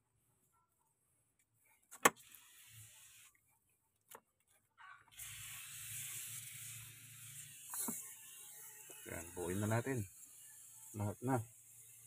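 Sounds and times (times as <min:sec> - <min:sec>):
aerosol spray hissing: 0:02.2 - 0:03.4, 0:05.1 - 0:12.0.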